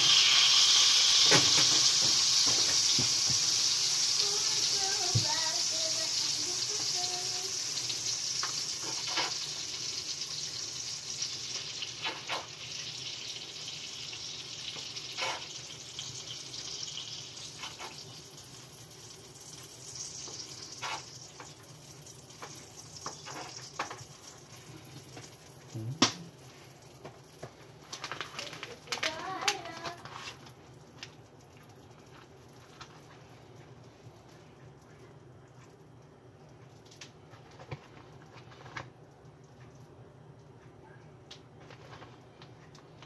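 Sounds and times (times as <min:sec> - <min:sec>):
fat sizzling in a roasting pan: 0:00.0 - 0:34.4.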